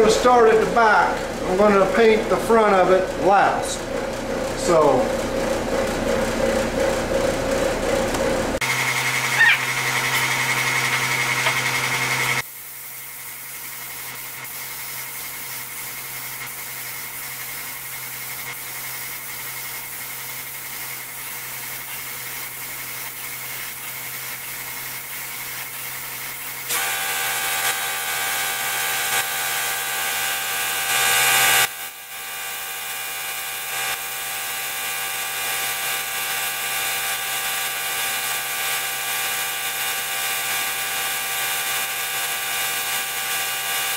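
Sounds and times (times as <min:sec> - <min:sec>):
air supply motor whine: 0:00.0 - 0:43.9
spray gun air hiss: 0:12.6 - 0:27.7.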